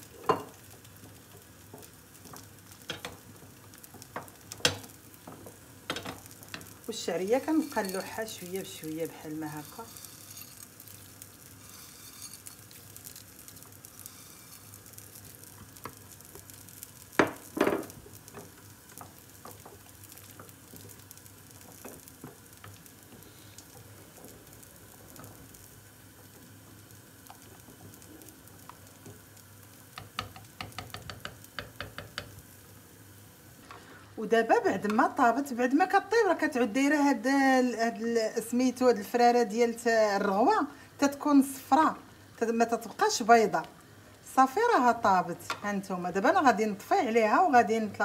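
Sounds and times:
steady low hiss: 0.0s - 48.0s
wooden spoon stirring soup: 0.3s - 32.6s
spoon knocking against pot: 30.0s - 32.4s.

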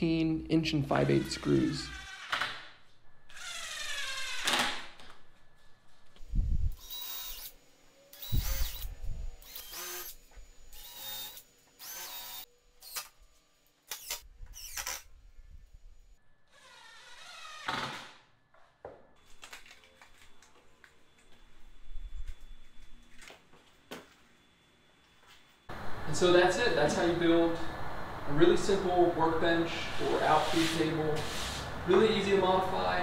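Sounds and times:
cordless drill driving screws: 6.8s - 13.1s, 13.9s - 15.1s.

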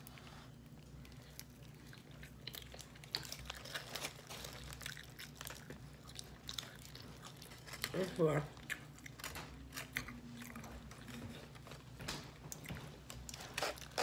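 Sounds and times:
chewing sandwich: 0.0s - 14.0s
faint low hum: 0.0s - 14.0s
foil wrapper crackling: 2.8s - 6.4s.

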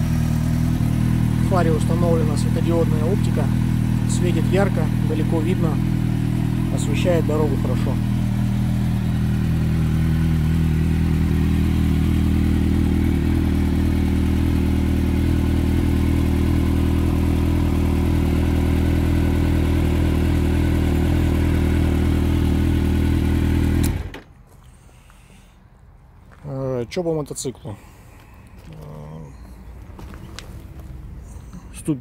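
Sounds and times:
motorcycle engine idling: 0.0s - 24.8s.

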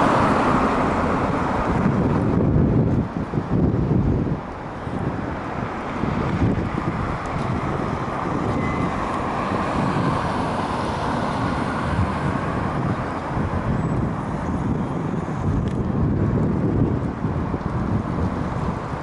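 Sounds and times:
vehicle passing: 0.0s - 2.9s, 4.8s - 14.4s
wind buffeting microphone: 0.0s - 19.0s.

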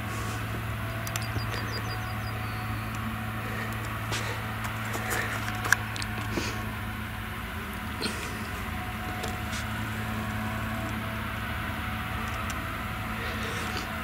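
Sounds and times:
harvester engine hum: 0.0s - 14.0s
sharp ticks: 1.0s - 3.0s.

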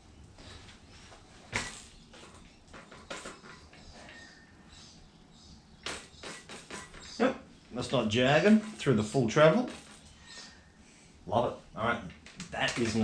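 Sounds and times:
sharp clicks and knocks: 1.6s - 4.2s, 5.8s - 7.1s, 9.6s - 10.1s, 12.1s - 13.0s.

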